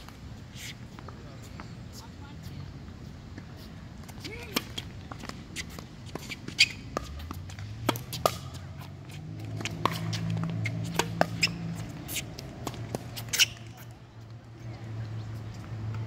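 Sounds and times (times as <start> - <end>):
tennis ball bouncing on court: 3.4 - 16.0
tennis ball hitting racket: 4.1 - 14.0.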